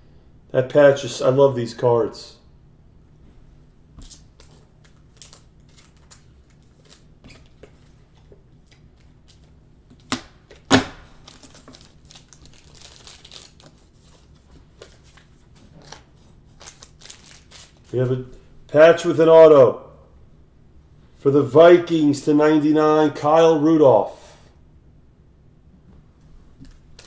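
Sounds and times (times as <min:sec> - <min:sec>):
trading cards rustling and clicking: 0:04.0 - 0:18.1.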